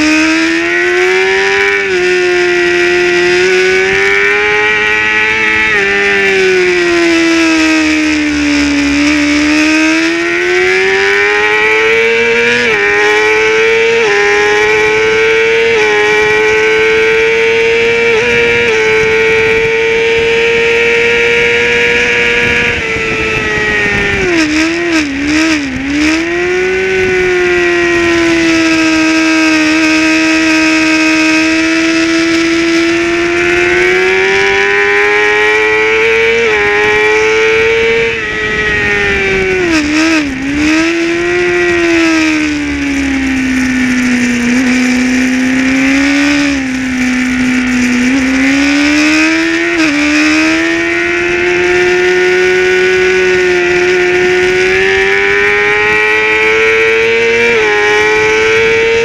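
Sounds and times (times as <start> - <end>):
racing motorcycle engine revving: 0.0 - 59.0
wind rushing: 17.6 - 28.7, 32.5 - 56.6.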